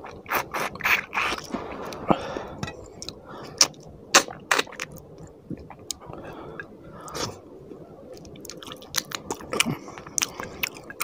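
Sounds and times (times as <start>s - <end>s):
mouth smacking and chewing: 0.0s - 1.5s, 8.1s - 11.0s.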